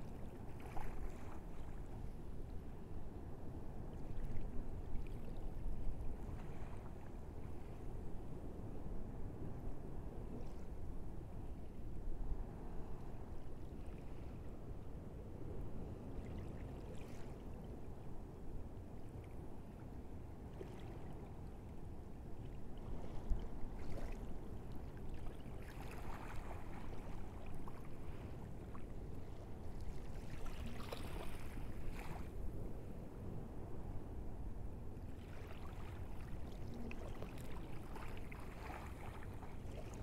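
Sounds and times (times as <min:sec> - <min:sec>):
small waves lapping on sand: 0:00.0 - 0:02.3, 0:22.4 - 0:32.7, 0:35.1 - 0:40.0.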